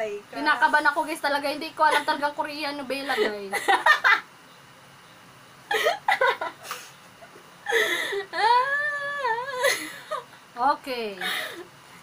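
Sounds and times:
wavering laughing whine: 1.8s - 4.4s, 5.6s - 10.5s, 11.2s - 11.8s
women laughing and giggling: 2.9s - 4.3s, 5.7s - 10.3s, 11.2s - 11.7s.

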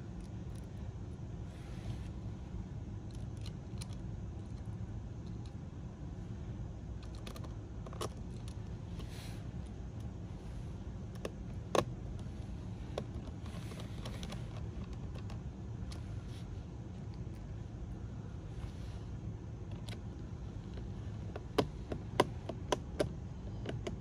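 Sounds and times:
tools clicking on laptop parts: 21.4s - 24.0s.

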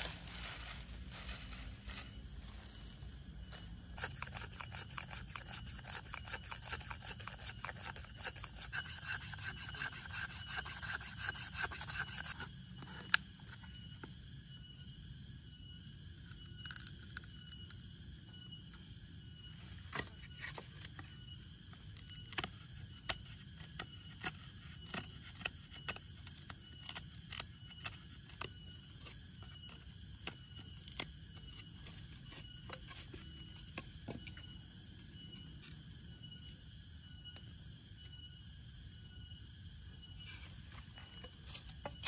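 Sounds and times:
insects buzzing: 0.0s - 42.0s
knife cutting and tapping bamboo: 3.4s - 13.8s, 19.8s - 34.5s.

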